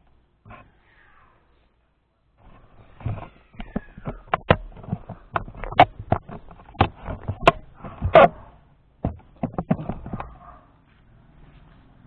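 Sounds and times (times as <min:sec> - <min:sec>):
camera handling knocks and clicks: 0:03.6 - 0:08.3, 0:09.0 - 0:10.3.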